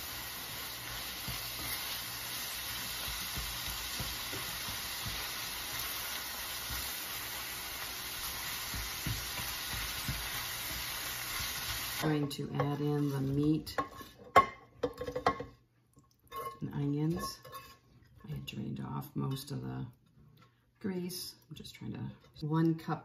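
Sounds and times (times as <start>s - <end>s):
meat and onion sizzling in a skillet: 0.0s - 12.1s
spatula knocking against pan: 8.6s - 10.9s.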